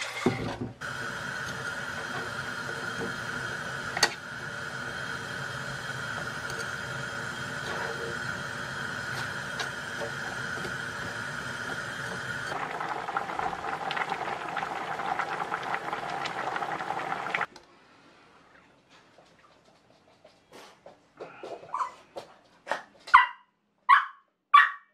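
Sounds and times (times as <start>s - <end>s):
kitchen hum with faint whine: 0.0s - 22.4s
food bubbling in a pan: 0.8s - 17.5s.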